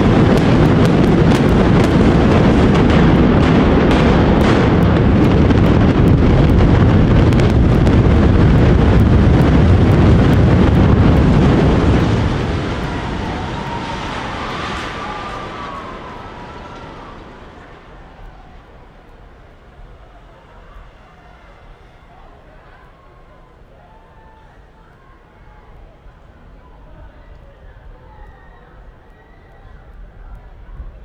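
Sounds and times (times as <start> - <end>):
explosive charges cracking: 0.0 - 18.2
deep rumble of building collapse: 0.0 - 22.7.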